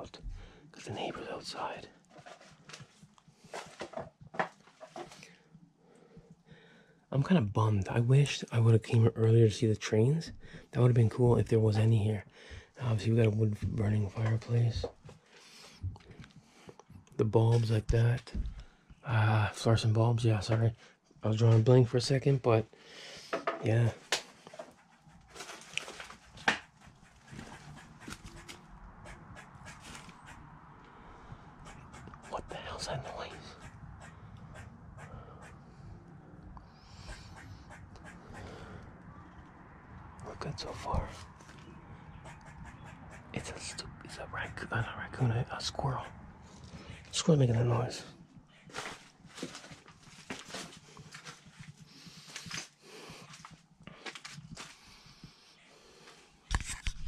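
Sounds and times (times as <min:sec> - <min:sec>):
squirrel scratching and clicking: 0:24.5 - 0:30.4, 0:31.6 - 0:32.4, 0:42.2 - 0:43.4
squirrel calls: 0:36.8 - 0:39.3, 0:41.7 - 0:43.4.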